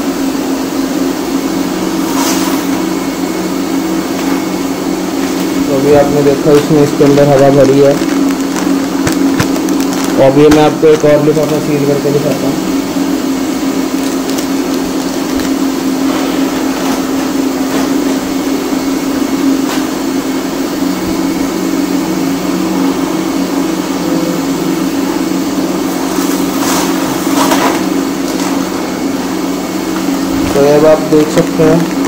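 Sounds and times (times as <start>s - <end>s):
motor hum: 0.0s - 32.0s
blowing air: 1.9s - 3.2s
foil packet rustling clicks: 6.5s - 10.8s, 13.7s - 15.8s.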